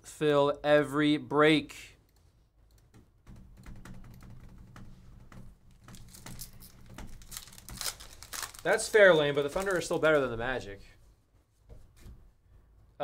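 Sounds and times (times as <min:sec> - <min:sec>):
light clicking and tapping at desk: 0:02.0 - 0:08.1.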